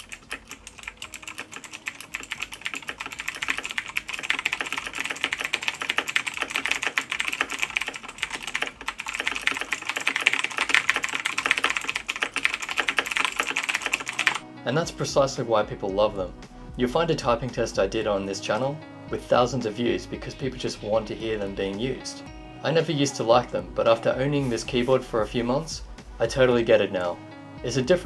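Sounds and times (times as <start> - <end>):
fast typing on mechanical keyboard: 0.0 - 14.4.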